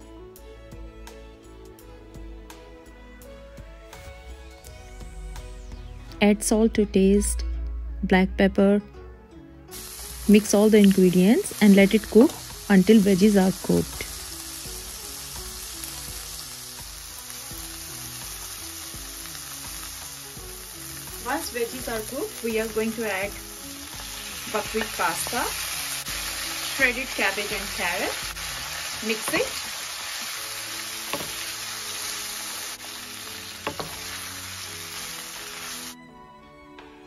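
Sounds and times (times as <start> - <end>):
soft background music: 0.0 - 37.0
vegetables sizzling in a pan: 9.7 - 36.0.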